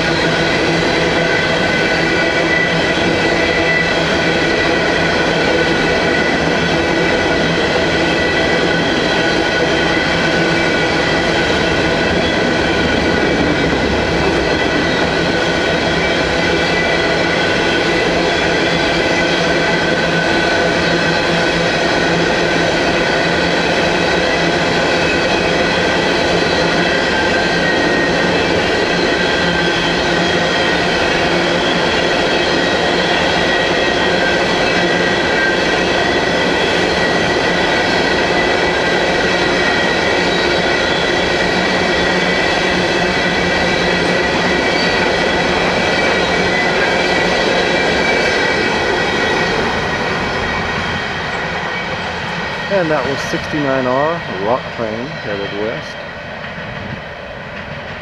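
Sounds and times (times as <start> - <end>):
train wheels rumbling on rail: 0.0 - 58.0
high wheel squeal: 24.3 - 53.1.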